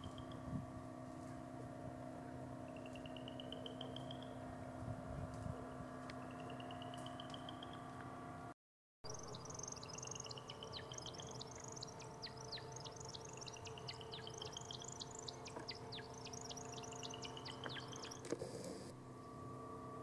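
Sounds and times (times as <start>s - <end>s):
steady low hum: 0.0s - 20.0s
rising pulsed trills: 9.1s - 18.3s.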